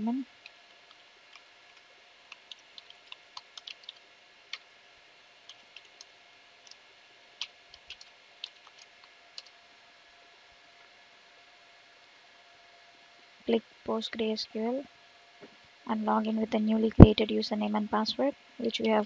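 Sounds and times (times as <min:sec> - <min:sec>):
steady low hiss: 0:00.0 - 0:19.0
computer keyboard keystrokes: 0:00.4 - 0:04.7, 0:05.5 - 0:06.8, 0:07.4 - 0:09.6.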